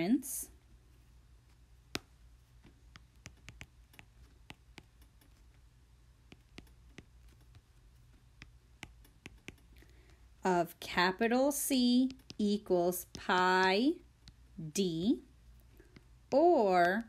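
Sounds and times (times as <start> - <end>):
low steady hum: 0.0 - 17.0
stylus tapping on tablet screen: 1.5 - 10.4, 11.8 - 14.6, 15.6 - 17.0.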